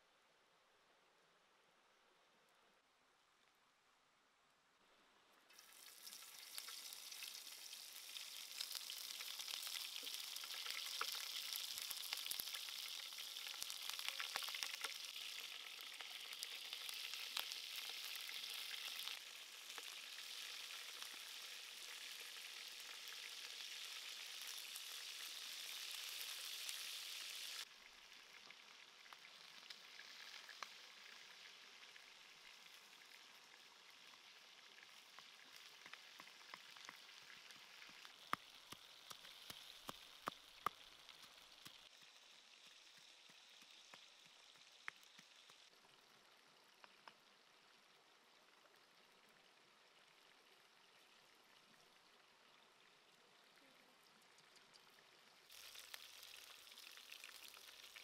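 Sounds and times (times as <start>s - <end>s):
skewers sizzling in frying pan: 5.5s - 45.7s, 55.4s - 58.0s.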